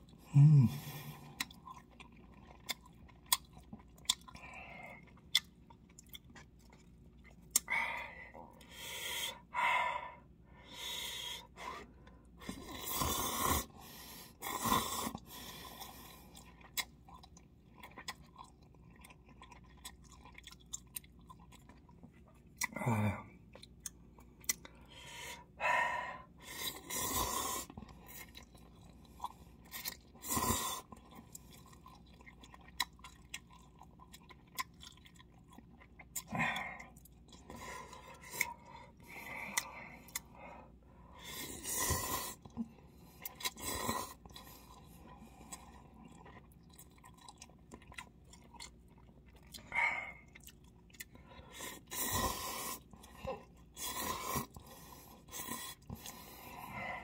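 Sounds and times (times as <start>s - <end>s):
chewing: 0.0s - 7.7s, 14.6s - 22.8s, 23.4s - 24.9s, 26.5s - 40.4s, 41.2s - 57.0s
noodles slurped: 50.3s - 57.0s.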